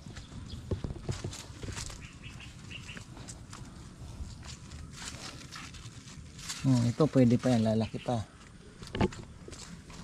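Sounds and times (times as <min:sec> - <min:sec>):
rustling of leaves and vines: 0:00.0 - 0:10.0
small bird chirps: 0:01.9 - 0:03.1.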